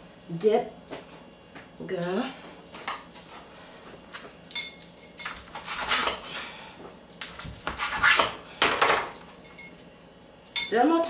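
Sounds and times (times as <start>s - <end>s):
knife sawing through bread: 5.6s - 6.4s, 7.7s - 8.3s.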